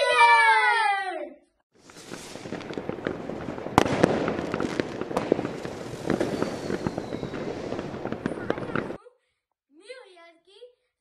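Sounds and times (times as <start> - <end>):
fireworks crackling: 1.7 - 9.0
fireworks bangs: 1.8 - 9.0.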